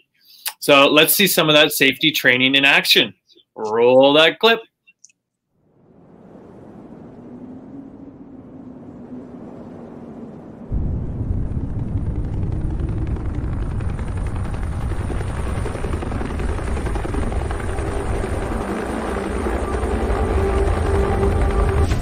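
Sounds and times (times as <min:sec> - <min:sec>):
helicopter rotor and engine: 0:12.0 - 0:22.0.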